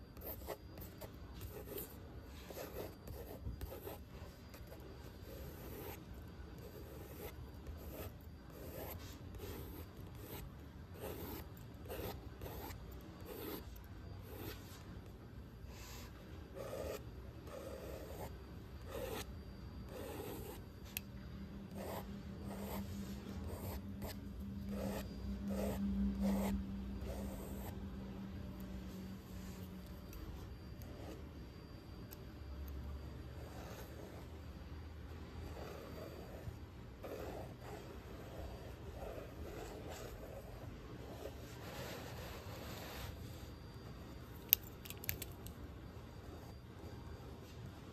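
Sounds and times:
steady low hum: 0.0s - 47.9s
pencil scratching on paper: 0.2s - 15.0s, 15.7s - 21.0s, 21.7s - 27.8s, 33.4s - 34.3s, 35.4s - 43.5s.

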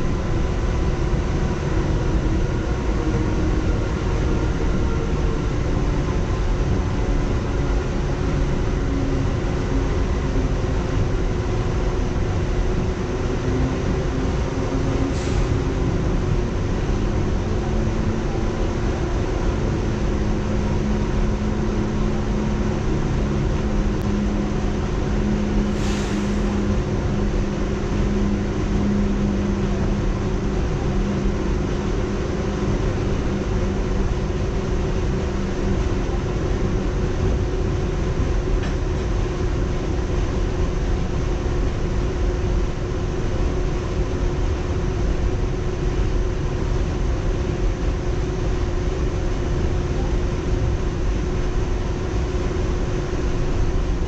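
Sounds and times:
constant low hum: 0.0s - 54.0s
train wheels rumbling on rail: 0.0s - 54.0s
brief hiss: 15.1s - 15.6s, 25.6s - 26.8s.

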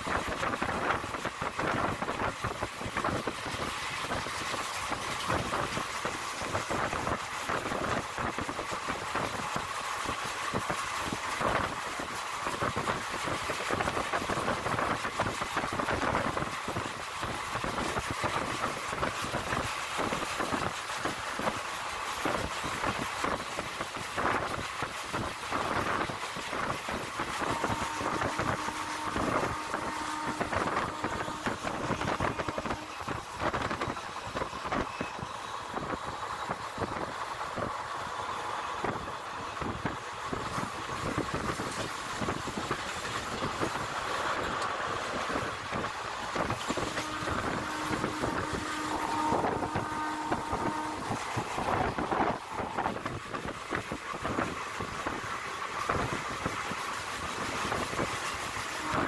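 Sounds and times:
train wheels rumbling on rails: 0.0s - 59.0s
rushing air: 27.0s - 59.0s.

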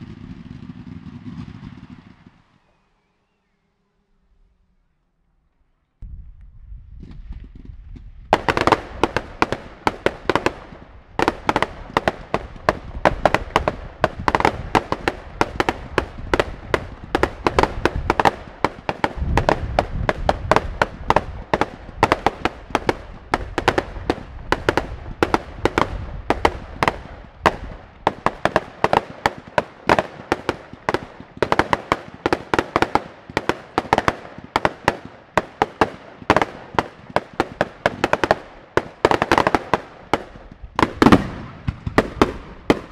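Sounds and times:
fireworks bangs and crackles: 0.0s - 2.6s, 7.0s - 42.9s
deep rumble: 12.5s - 22.0s.

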